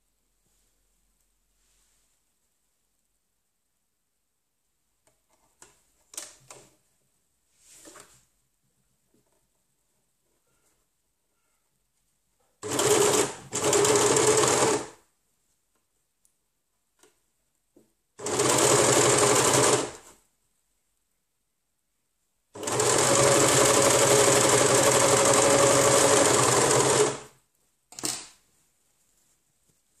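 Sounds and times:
overlocker stitching: 12.6 - 15.0, 18.2 - 20.1, 22.6 - 27.3.

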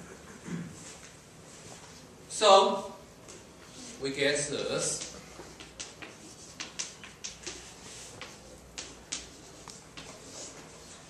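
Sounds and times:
chalk tapping on a blackboard: 4.9 - 11.0.

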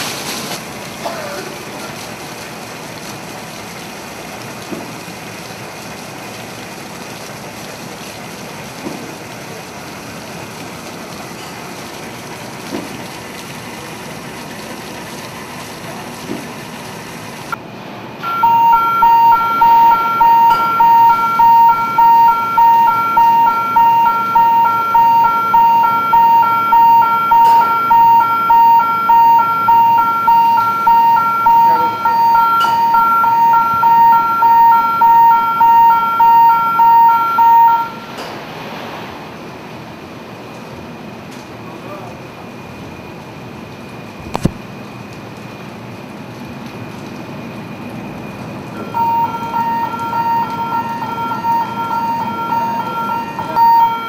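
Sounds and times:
water jet spraying: 0.0 - 3.5
electronic warning beeper: 18.2 - 38.2, 48.8 - 54.0.

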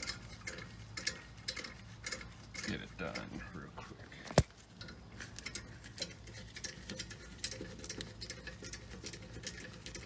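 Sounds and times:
ratchet wrench clicking: 0.0 - 2.8.

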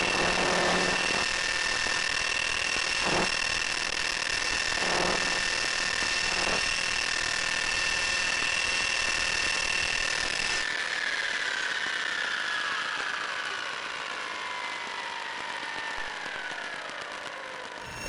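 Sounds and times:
model plane motor whining: 0.0 - 13.1.

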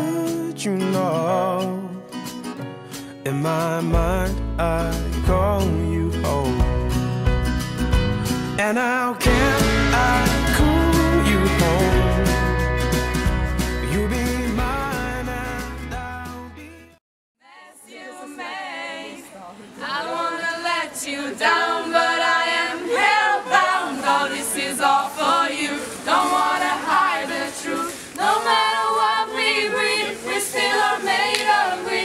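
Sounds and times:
group singing a cappella: 9.2 - 12.4, 17.4 - 32.0.

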